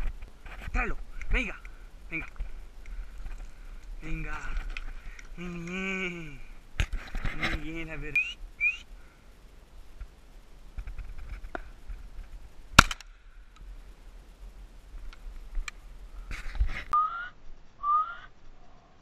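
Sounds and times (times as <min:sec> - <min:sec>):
handling rustle and clicks: 0:00.0 - 0:05.8
short rising whistles: 0:08.2 - 0:08.8, 0:17.0 - 0:18.3
shotgun shot: 0:12.8 - 0:13.0.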